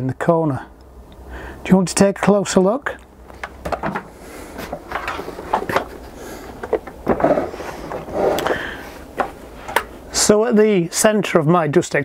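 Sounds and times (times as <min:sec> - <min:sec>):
plastic knocks and clatters: 0:03.3 - 0:06.0, 0:06.6 - 0:08.1
vacuum cleaner bumped down: 0:06.6 - 0:08.1.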